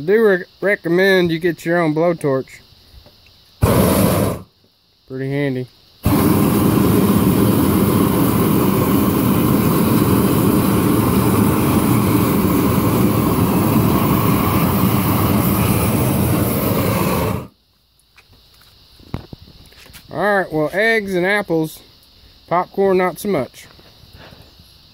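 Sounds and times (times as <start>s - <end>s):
blowtorch flame rushing: 3.6s - 4.5s, 6.0s - 17.5s.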